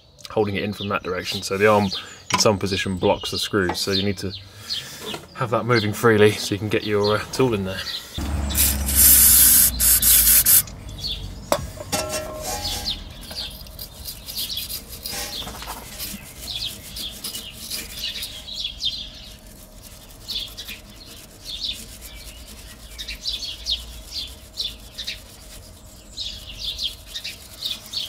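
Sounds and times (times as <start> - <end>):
wire brush scrubbing: 8.2 - 10.6, 12.3 - 18.5, 19.2 - 28.0.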